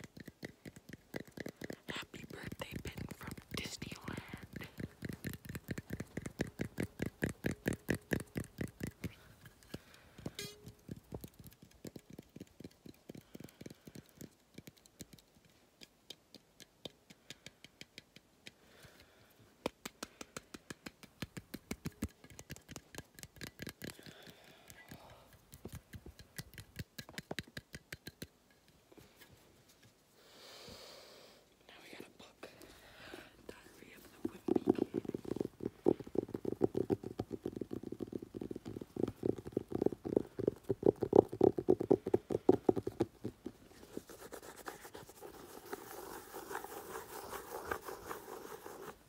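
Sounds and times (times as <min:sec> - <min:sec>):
rhythmic tapping at microphone: 0:00.0 - 0:15.3, 0:33.8 - 0:49.0.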